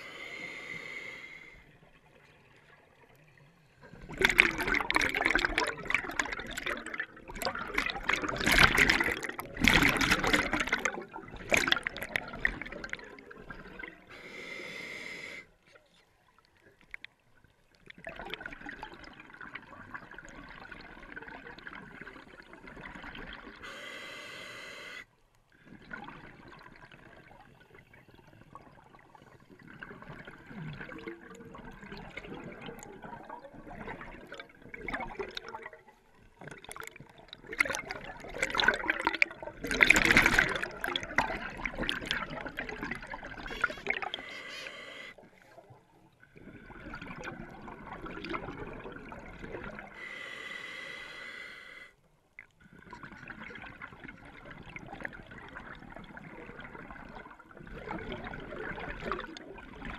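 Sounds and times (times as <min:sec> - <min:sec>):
hissing regulator inhalations: 0:00.0 - 0:01.6, 0:14.1 - 0:15.5, 0:23.6 - 0:25.1, 0:43.5 - 0:45.2, 0:50.0 - 0:52.0
gurgling exhaled bubbles: 0:03.8 - 0:14.1, 0:17.8 - 0:23.6, 0:25.6 - 0:44.4, 0:46.2 - 0:50.2, 0:52.6 - 0:59.9.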